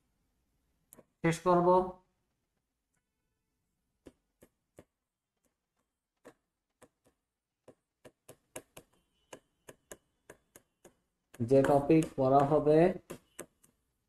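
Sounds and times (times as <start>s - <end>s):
pen tapping on touchscreen: 3.9s - 14.0s.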